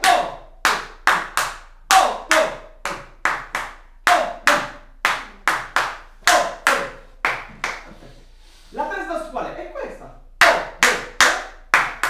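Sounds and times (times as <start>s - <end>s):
hand claps in rhythm: 0.0s - 8.0s, 10.4s - 12.0s.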